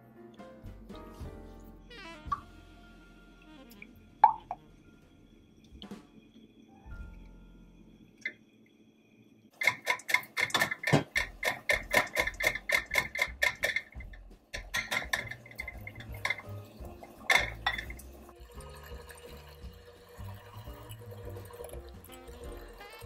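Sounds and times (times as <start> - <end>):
whisk clicking against glass bowl: 9.6 - 16.4.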